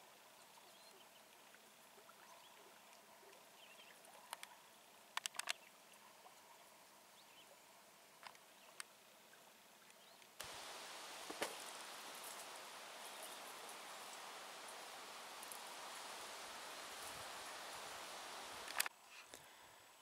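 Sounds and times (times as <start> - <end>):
faint sharp clicks: 4.2 - 5.7, 8.2 - 8.9, 9.8 - 19.5.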